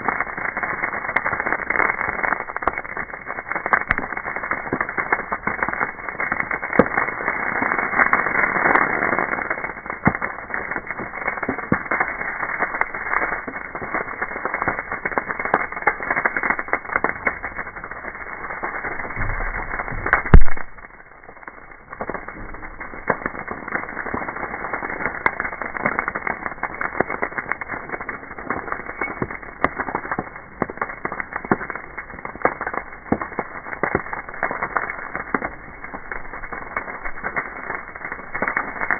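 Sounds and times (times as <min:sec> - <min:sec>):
brush fire crackling and popping: 0:00.0 - 0:38.9
loud pop with low rumble: 0:18.9 - 0:23.6.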